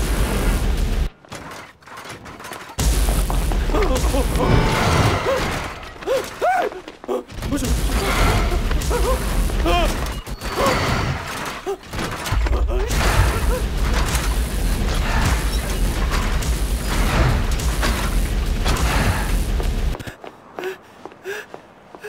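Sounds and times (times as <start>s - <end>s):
dense mechanical noise: 0.0s - 6.1s, 7.3s - 20.2s
deep rumble: 12.6s - 20.1s.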